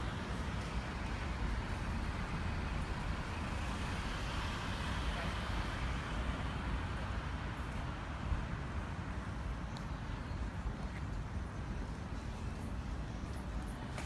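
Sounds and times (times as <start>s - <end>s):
low traffic rumble: 0.0s - 14.0s
passing cars: 0.0s - 14.0s.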